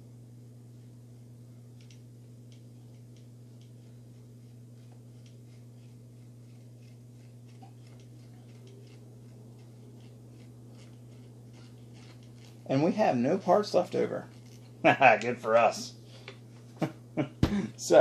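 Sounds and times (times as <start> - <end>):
steady low hum: 0.0 - 18.0
screwdriver ticks and clicks: 1.8 - 3.7.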